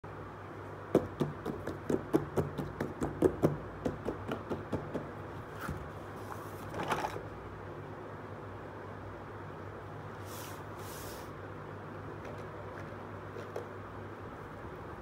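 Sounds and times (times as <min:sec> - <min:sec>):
fingertips tapping on cardboard box: 0:00.9 - 0:05.2.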